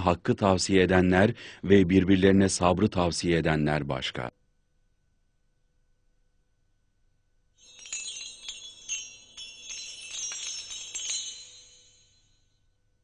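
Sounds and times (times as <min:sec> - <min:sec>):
shimmering chime tinkles: 0:07.6 - 0:12.9.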